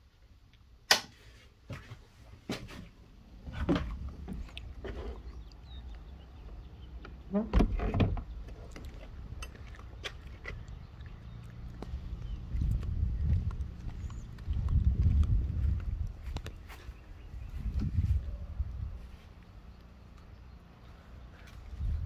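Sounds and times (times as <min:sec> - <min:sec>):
low rumble: 0:08.8 - 0:19.1.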